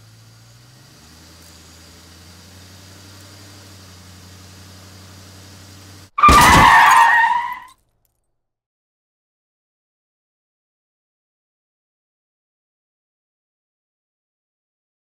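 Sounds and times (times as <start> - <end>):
car engine and road hum: 0.0 - 7.7
loud car crash crunch: 6.1 - 7.8.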